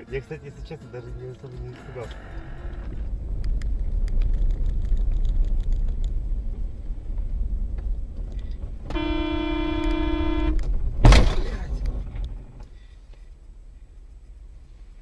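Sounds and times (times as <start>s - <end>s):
car engine and road rumble: 0.0s - 15.0s
car horn: 8.9s - 10.7s.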